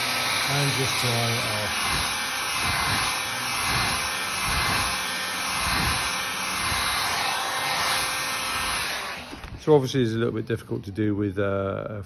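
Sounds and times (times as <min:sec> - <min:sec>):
heat gun blowing air: 0:00.0 - 0:09.6.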